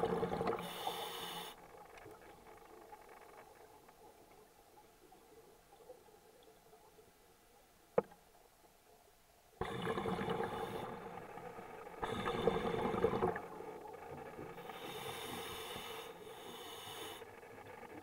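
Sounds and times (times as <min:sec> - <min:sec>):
diver breathing through regulator: 0:00.6 - 0:01.6, 0:12.0 - 0:13.3, 0:14.6 - 0:17.5.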